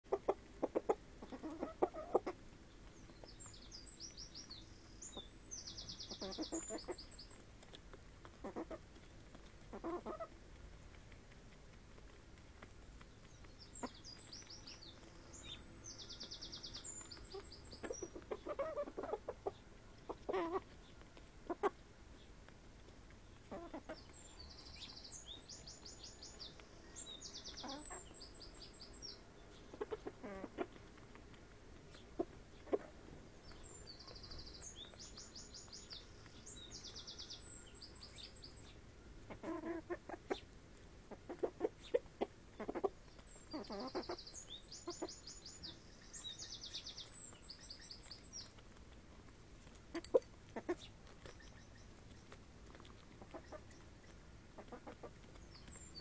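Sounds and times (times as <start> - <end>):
chickens clucking: 0.0 - 56.0
songbird trilling: 42.7 - 48.4.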